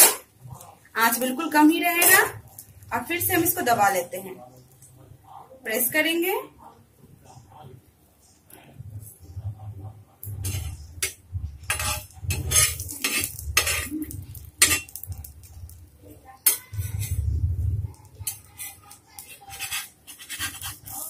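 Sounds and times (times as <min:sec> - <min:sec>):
steel spatula scraping a griddle: 0:10.4 - 0:15.2, 0:16.4 - 0:17.4, 0:18.1 - 0:21.0.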